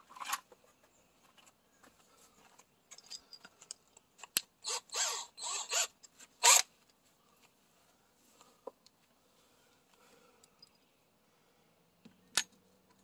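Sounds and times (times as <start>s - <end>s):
cordless drill whirring: 4.6s - 6.7s.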